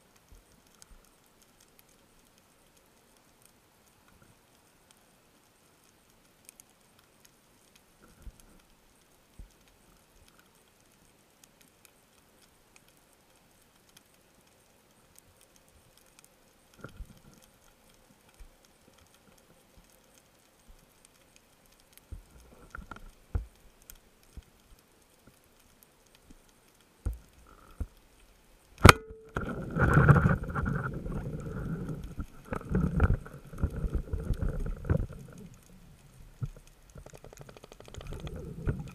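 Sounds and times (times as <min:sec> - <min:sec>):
faint underwater clicks: 0:00.0 - 0:38.9.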